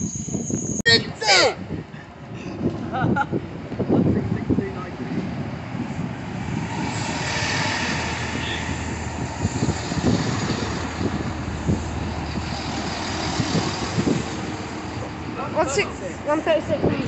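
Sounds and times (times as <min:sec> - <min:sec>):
diesel train drone: 0:03.4 - 0:17.0.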